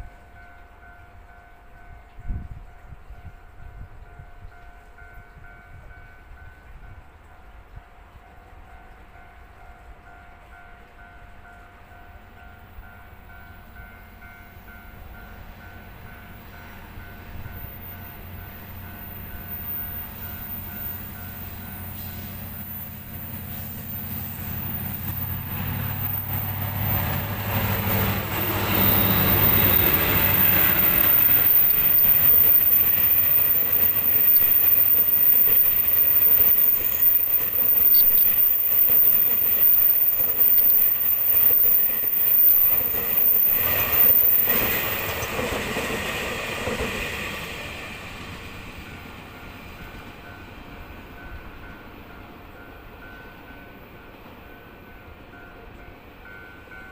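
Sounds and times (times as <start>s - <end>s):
train wheels rushing on rail: 8.4s - 56.9s
locomotive engine drone: 12.1s - 36.7s.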